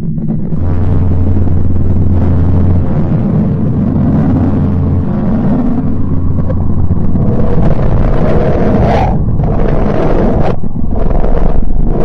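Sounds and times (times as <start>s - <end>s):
deep noisy rumble: 0.0s - 12.0s.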